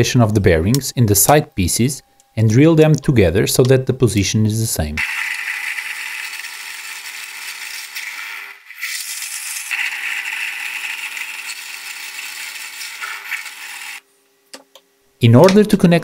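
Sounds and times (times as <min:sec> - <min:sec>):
drill press boring through plywood: 0:05.0 - 0:14.0.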